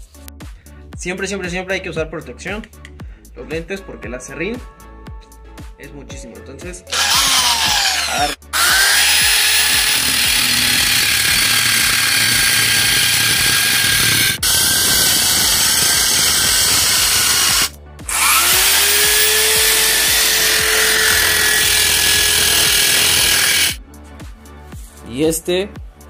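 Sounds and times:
angle grinder cutting wood: 0:06.9 - 0:23.8.

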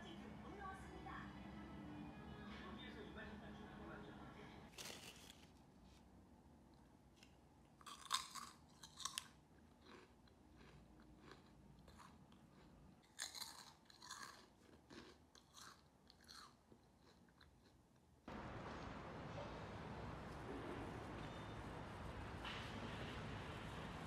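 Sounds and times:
crunchy snacks being chewed: 0:07.8 - 0:18.1.

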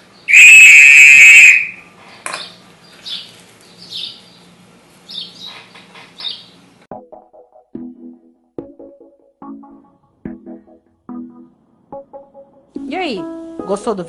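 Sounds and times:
loud high tone: 0:00.3 - 0:01.9
bird chirping: 0:02.4 - 0:06.7.

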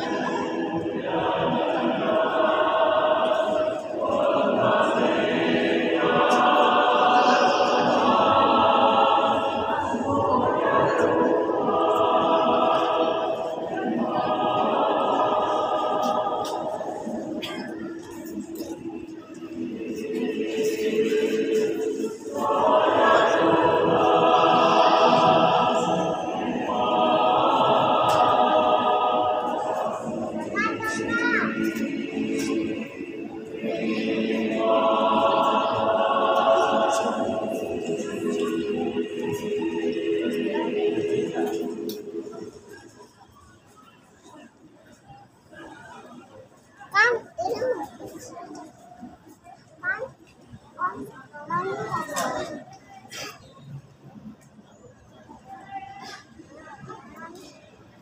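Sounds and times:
choir singing held chords: 0:00.0 - 0:44.4.

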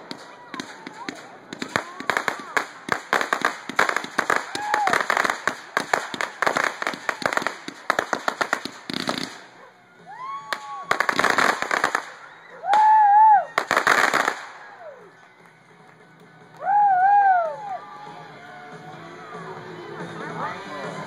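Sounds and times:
fireworks crackling pops: 0:00.0 - 0:17.5
spectators whooping: 0:04.3 - 0:05.1, 0:09.6 - 0:13.9, 0:14.6 - 0:15.2, 0:16.5 - 0:18.4.

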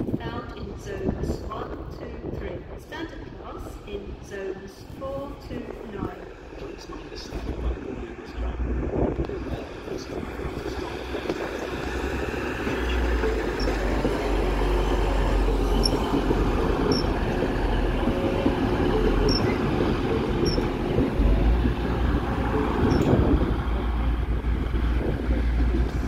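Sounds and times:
diesel train engine rumble: 0:00.0 - 0:26.0
train wheels on rails: 0:09.2 - 0:26.0.

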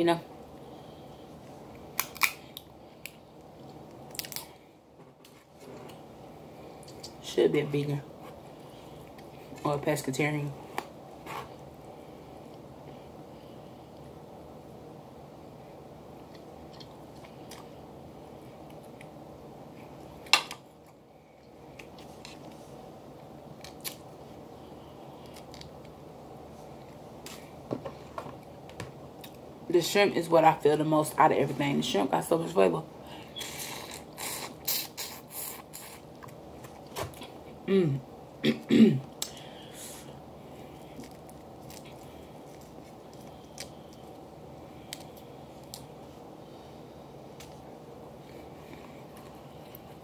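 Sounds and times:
low background noise: 0:00.0 - 0:50.0
low room hiss: 0:00.0 - 0:50.0
crab shell cracking: 0:02.0 - 0:03.2.

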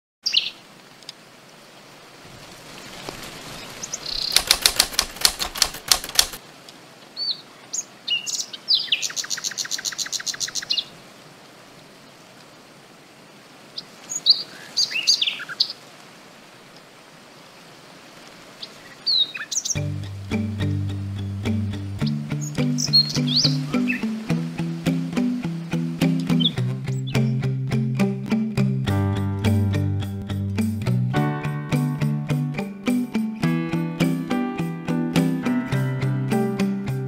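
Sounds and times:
outdoor ambience hiss: 0:00.2 - 0:28.8
wings flapping: 0:02.3 - 0:06.4
bird chirps: 0:03.6 - 0:04.5, 0:07.2 - 0:10.9, 0:18.6 - 0:19.8, 0:22.0 - 0:24.2, 0:26.3 - 0:27.4
bird rattling trill: 0:03.8 - 0:06.4.

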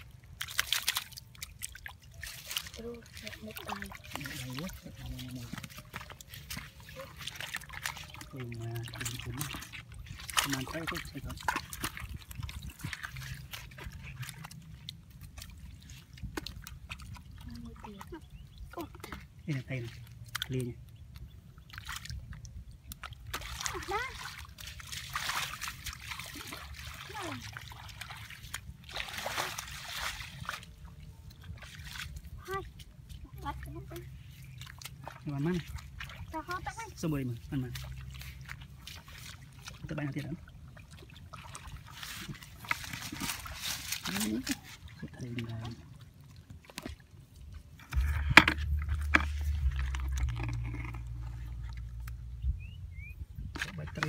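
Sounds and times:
bare feet splashing through water: 0:00.0 - 0:54.0
water trickling: 0:00.0 - 0:54.0
low rumble: 0:47.8 - 0:53.6.

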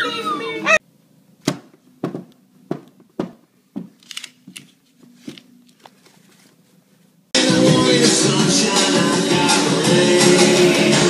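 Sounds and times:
loud music: 0:07.4 - 0:11.0.

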